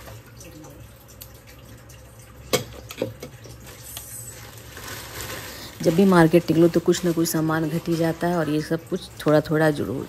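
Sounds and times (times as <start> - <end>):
plastic bag rustling: 3.5 - 10.0.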